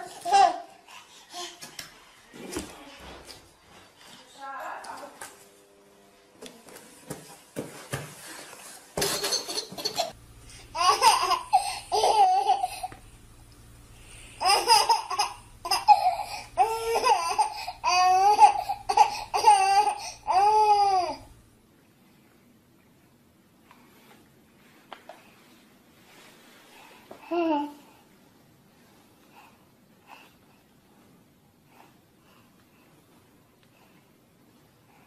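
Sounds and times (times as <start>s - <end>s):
baby laughing: 9.0s - 13.0s, 14.4s - 21.2s.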